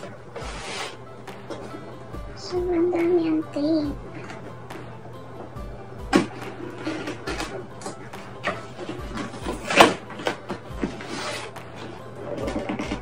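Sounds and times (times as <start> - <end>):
cardboard flaps rustling and scraping: 0.0 - 1.0, 6.2 - 13.0
packing tape peeling and tearing: 0.4 - 1.0, 9.2 - 13.0.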